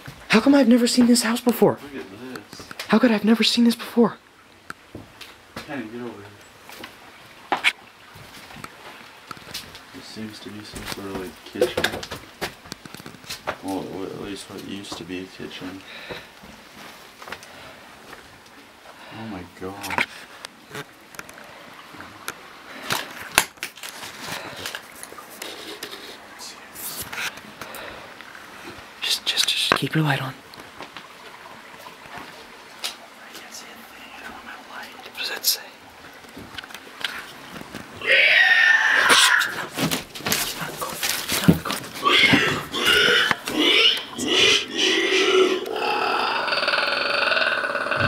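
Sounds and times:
footsteps and handling knocks: 10.6s - 13.7s, 39.7s - 42.7s
animal grunting and squealing: 38.0s - 39.8s, 42.0s - 48.0s.

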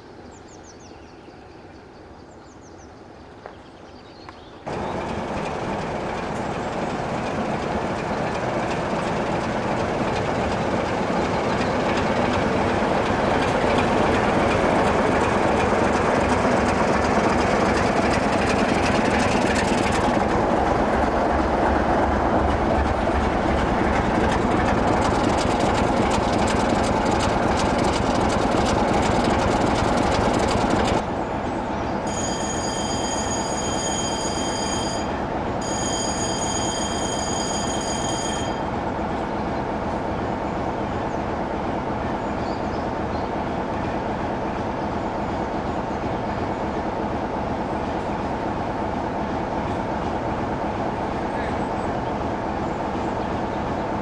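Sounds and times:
diesel locomotive passing: 4.6s - 54.0s
steady high-pitched squeal: 4.7s - 39.3s.

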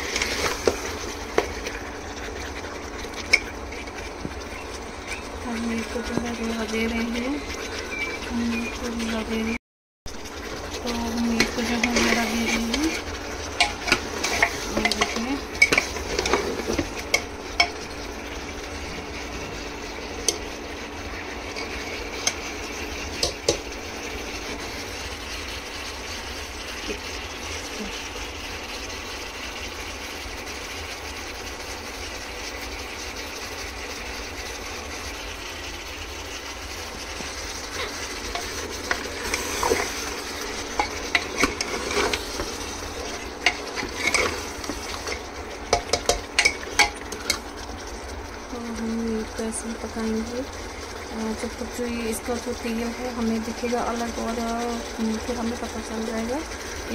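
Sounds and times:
spoon scraping and knocking pan: 0.0s - 9.0s, 10.4s - 18.0s, 21.5s - 23.7s, 37.1s - 47.5s
meat sizzling in oil: 0.0s - 56.9s.

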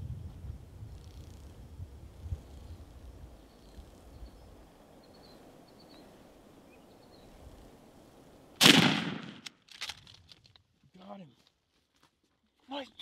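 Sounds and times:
faint bird chirps: 2.4s - 7.6s
shotgun shot: 8.6s - 9.5s.

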